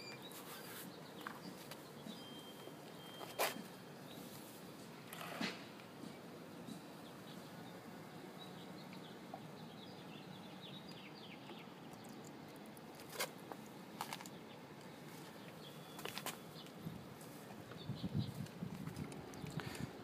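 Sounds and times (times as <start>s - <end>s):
small birds chirping: 0.0s - 4.4s, 6.5s - 12.8s, 17.5s - 20.0s.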